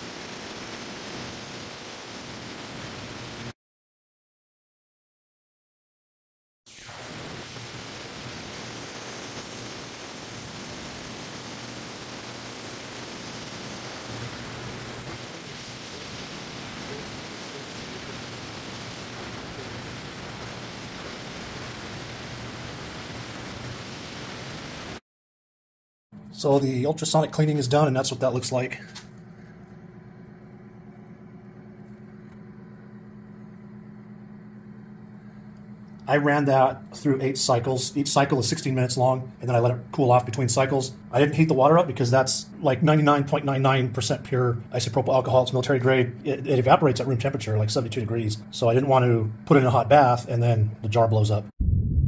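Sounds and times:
ultrasonic cleaner hiss: 0.0 - 3.5, 6.7 - 25.0
low machine hum: 26.2 - 51.0.

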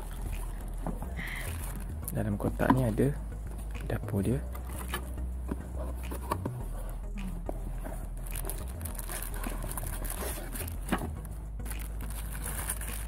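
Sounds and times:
rustling and crinkling in a box: 7.5 - 13.0.

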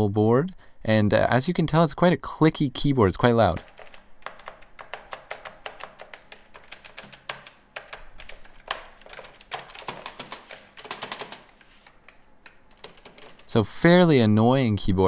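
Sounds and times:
fast keyboard typing clicks: 3.4 - 13.6.

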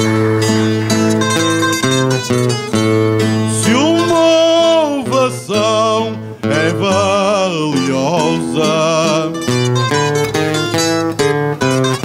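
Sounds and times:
acoustic guitar: 0.0 - 12.0
plucked string instrument: 0.0 - 12.0
man singing with vibrato: 3.2 - 10.8.

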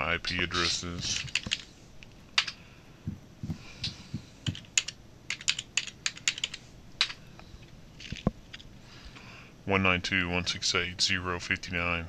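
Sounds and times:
keyboard and mouse clicking: 2.4 - 2.6, 3.8 - 7.2.

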